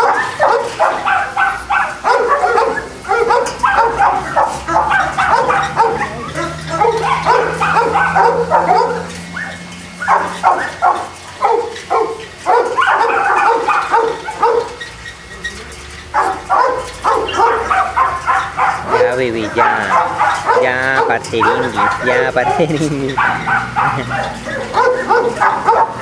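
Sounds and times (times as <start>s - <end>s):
dogs barking and yipping: 0.0s - 26.0s.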